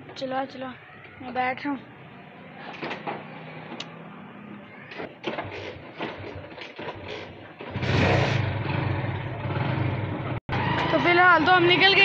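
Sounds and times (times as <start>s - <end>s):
motorcycle engine running: 5.2s - 12.0s.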